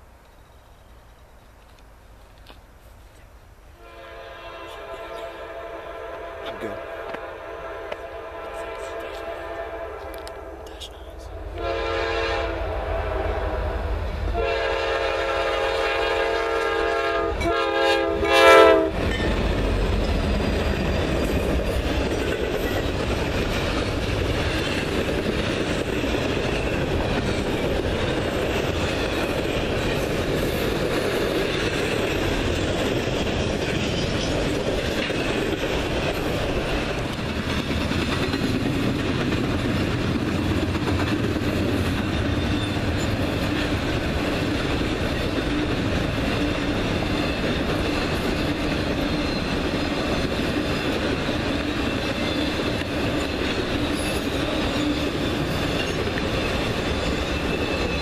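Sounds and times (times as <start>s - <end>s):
locomotive air horn: 3.8s - 10.6s, 11.6s - 19.0s.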